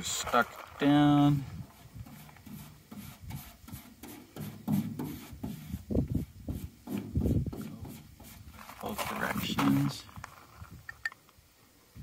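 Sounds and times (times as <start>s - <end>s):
paintbrush rubbing on stencil: 1.6s - 8.8s.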